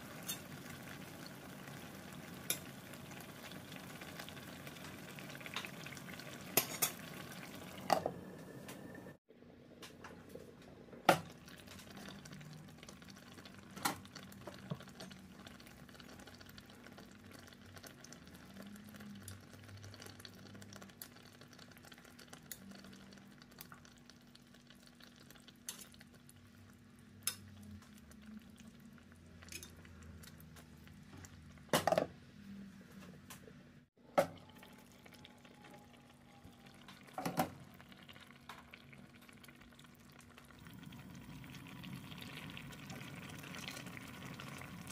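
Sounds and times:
sauce bubbling and sizzling: 0.0 - 9.3, 10.4 - 31.7, 33.8 - 44.9
metal tongs clanking on pan: 0.1 - 0.6, 2.4 - 2.7, 6.6 - 7.1, 29.4 - 29.8.

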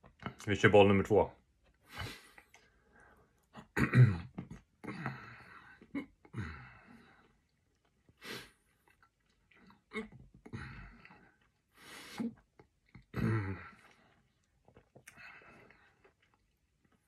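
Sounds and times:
man coughing: 3.8 - 4.3
man chewing: 7.2 - 13.1, 13.7 - 17.0.

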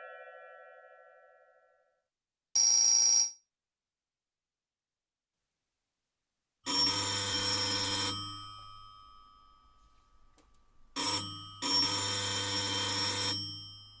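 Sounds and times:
electric doorbell ringing: 6.7 - 10.3, 11.0 - 14.0.

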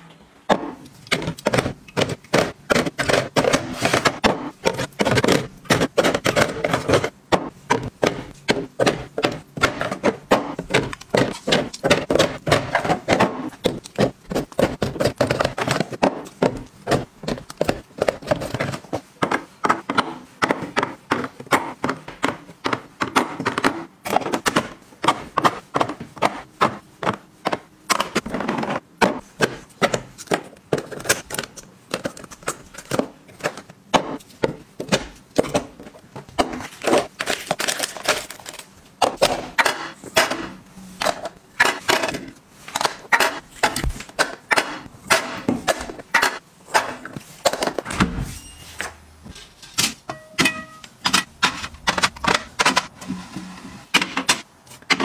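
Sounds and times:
knocks in plastic boxes: 0.5 - 30.9.

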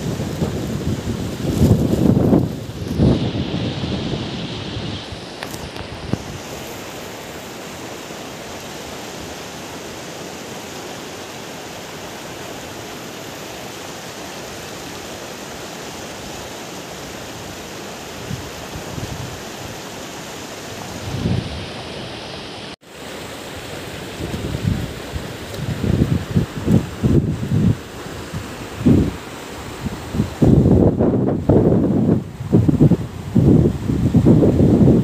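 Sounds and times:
wind gusts on microphone: 0.0 - 7.4, 16.3 - 20.0, 20.6 - 22.3, 23.6 - 35.0
river rushing over rocks: 0.0 - 35.0.

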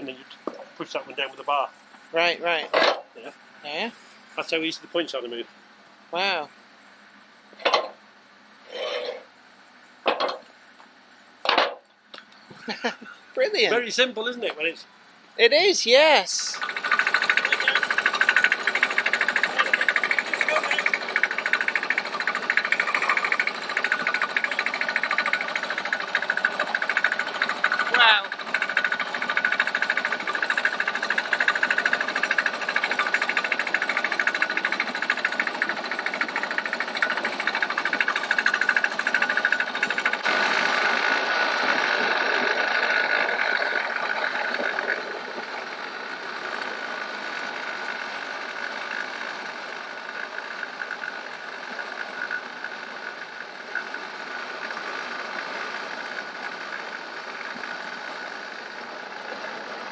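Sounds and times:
small engine knocking: 16.5 - 59.9.

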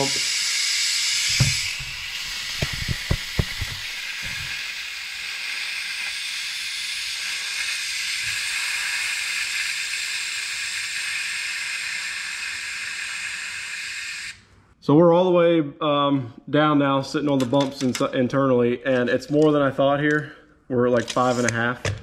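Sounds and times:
compressed air hissing: 0.0 - 14.5.

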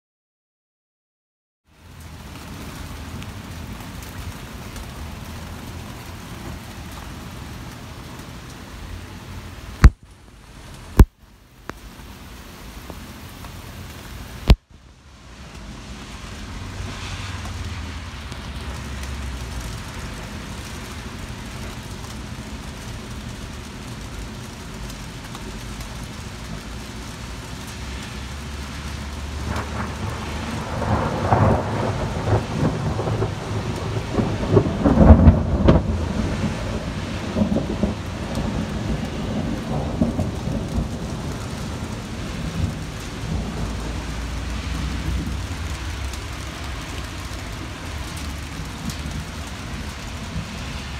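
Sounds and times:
heavy rain: 1.6 - 50.9
thunder rumbling: 28.4 - 50.9.

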